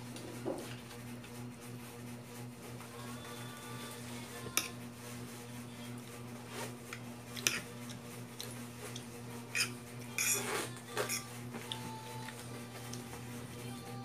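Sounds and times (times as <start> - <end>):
fork clinking on a plate: 9.5 - 10.4.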